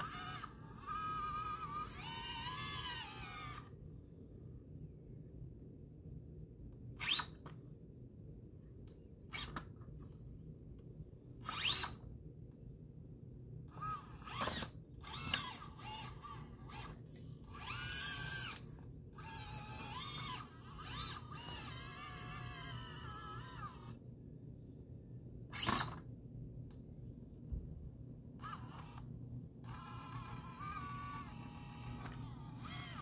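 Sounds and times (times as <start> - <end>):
electric motor and gears whining: 0.0 - 3.8, 7.0 - 7.5, 11.4 - 12.1, 13.7 - 24.0, 25.5 - 26.0, 28.4 - 33.0.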